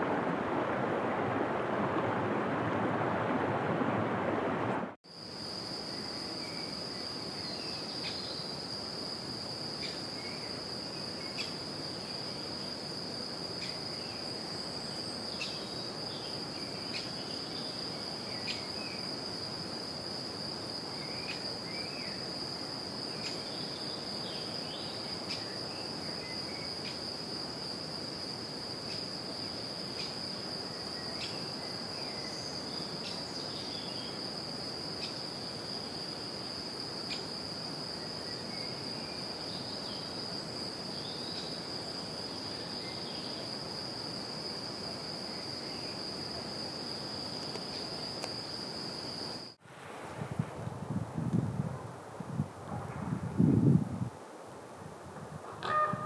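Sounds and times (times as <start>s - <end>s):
high-pitched insect trill: 5.1s - 49.6s
soft even hiss: 32.2s - 53.1s.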